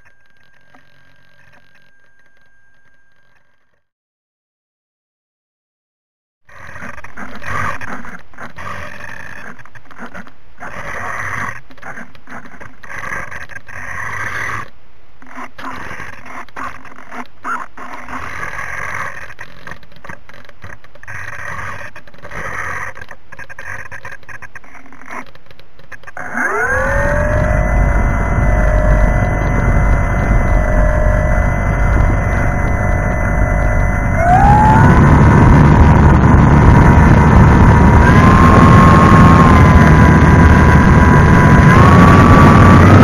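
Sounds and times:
unsteady rough noise: 6.5 - 43.0
model plane motor whine: 26.2 - 43.0.

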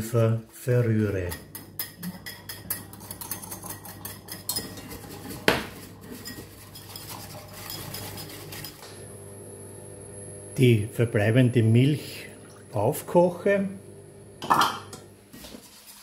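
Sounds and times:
whisk clinking on bowl: 1.1 - 8.8
wire whisk rattling against glass bowl: 1.3 - 5.4, 6.1 - 8.8.

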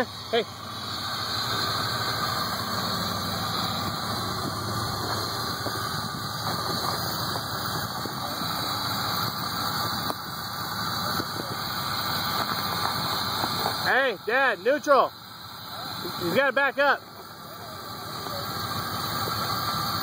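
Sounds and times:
buggy engine running at low speed: 0.0 - 20.0.

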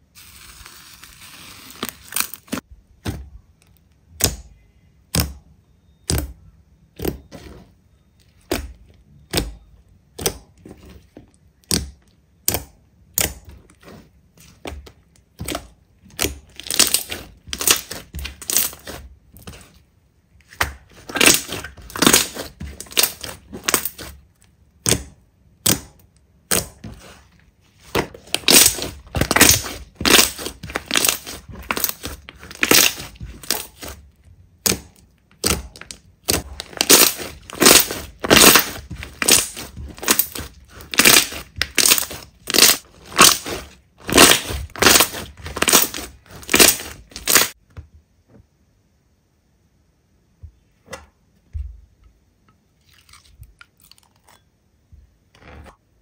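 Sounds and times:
slime squishing and popping: 7.0 - 7.5, 8.4 - 19.7, 20.4 - 27.2, 27.8 - 47.6.

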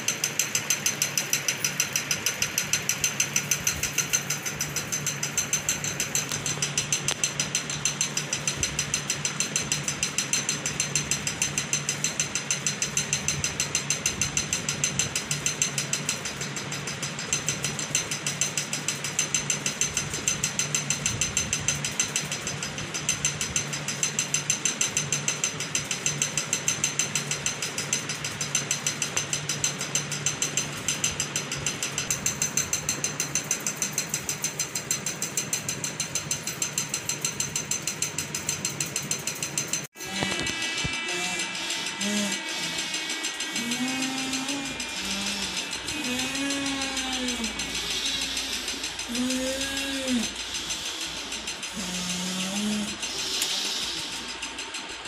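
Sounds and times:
rapid mechanical ticking: 0.0 - 55.0.

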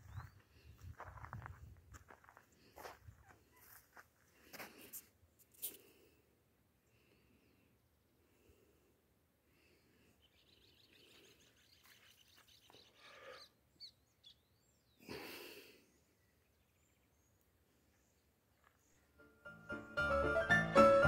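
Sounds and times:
faint bird chirps: 0.0 - 0.5, 9.8 - 15.1.

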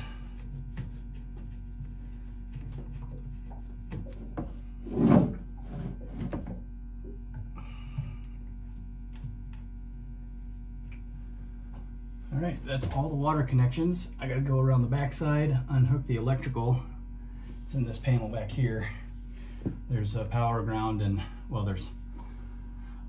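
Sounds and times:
steady low hum: 0.0 - 23.0
knock and scrape: 0.4 - 6.6.

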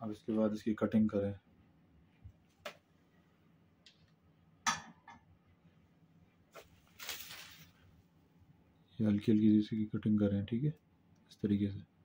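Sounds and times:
faint clicks and taps: 2.1 - 2.9, 3.8 - 4.2
cable rustling: 6.5 - 8.0.

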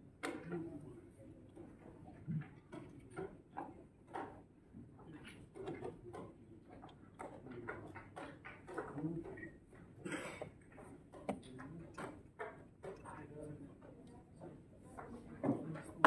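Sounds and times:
chess pieces clicking on boards: 10.7 - 13.0.

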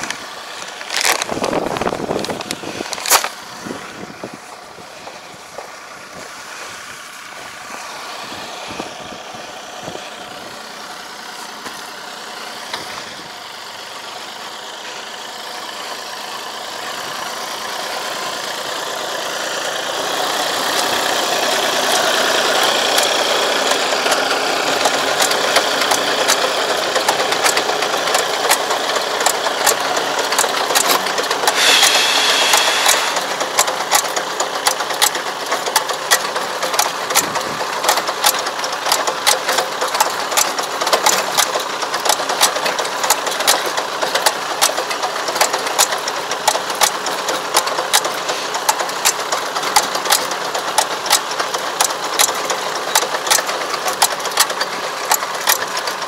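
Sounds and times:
tractor diesel engine: 0.0 - 56.0
rapid regular clicking: 21.8 - 56.0
brief bright rasp: 31.5 - 33.2.

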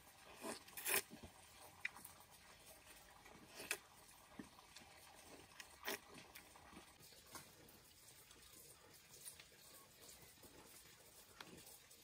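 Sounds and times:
wet bites and slurps: 0.2 - 2.2, 3.3 - 6.9.

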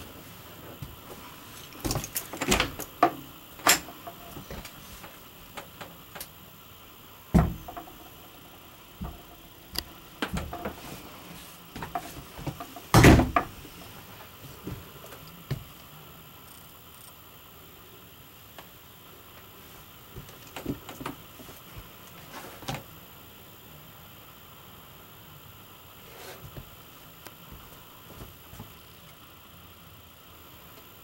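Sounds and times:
doors knocking against frames: 7.3 - 7.9.

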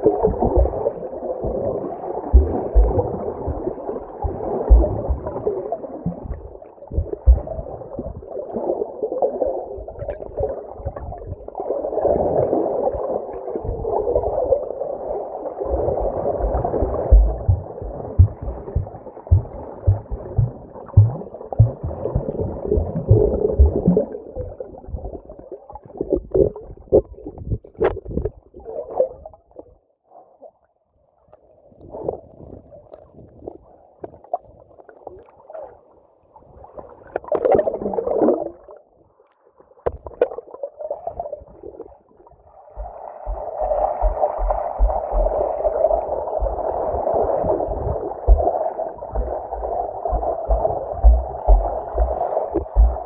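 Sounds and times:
falling gurgle: 0.0 - 29.3, 42.5 - 53.0
water gurgling and swishing underwater: 0.0 - 53.0
low thumps: 16.5 - 24.0, 42.8 - 45.4, 47.8 - 48.5, 49.1 - 53.0.

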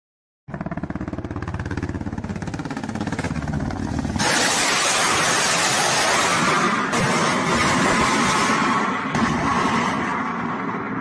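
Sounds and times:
helicopter rotor blade thumping: 0.5 - 7.8
rockets firing with rushing noise: 3.7 - 11.0.

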